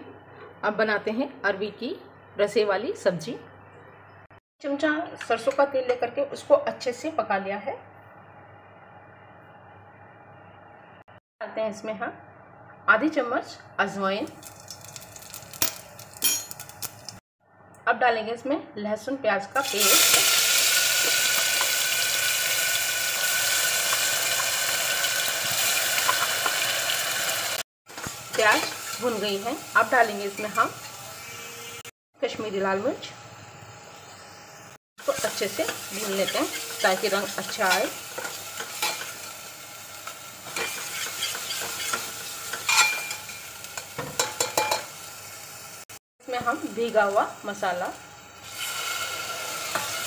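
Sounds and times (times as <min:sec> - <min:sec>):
paste sizzling in hot oil: 0:19.6 - 0:31.8, 0:35.0 - 0:45.9, 0:48.3 - 0:50.0
steel ladle scraping pot: 0:36.1 - 0:39.1, 0:40.5 - 0:44.9
spoon stirring: 0:40.6 - 0:44.8.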